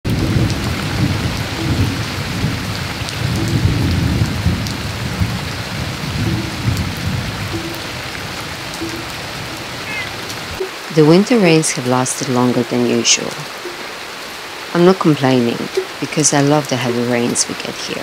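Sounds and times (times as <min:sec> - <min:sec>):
heavy rain on paving and foliage: 0:00.0 - 0:18.0
low rumbling: 0:00.1 - 0:11.2.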